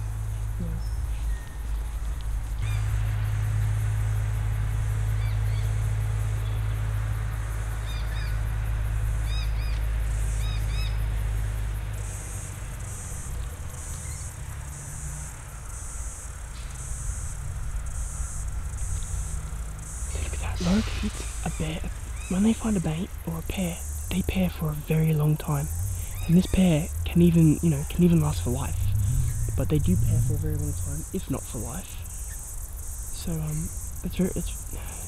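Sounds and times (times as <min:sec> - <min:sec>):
insect chirping in pulses: 0:00.0 - 0:35.0
low steady rumble: 0:00.0 - 0:35.0
small bird chirping: 0:00.3 - 0:02.8, 0:12.1 - 0:34.7.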